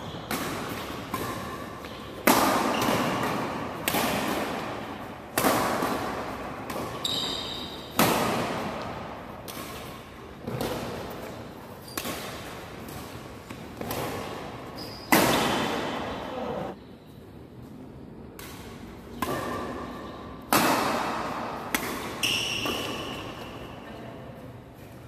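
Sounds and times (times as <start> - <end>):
shoe squeaks: 0.0 - 0.3, 6.9 - 7.9, 14.7 - 15.5, 22.2 - 23.3
racquet hitting shuttlecock: 0.1 - 16.2, 18.4 - 23.8.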